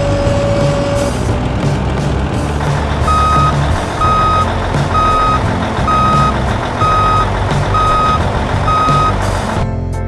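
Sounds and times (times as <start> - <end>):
low engine rumble: 0.0 - 9.8
truck reversing alarm beeping: 2.8 - 9.4.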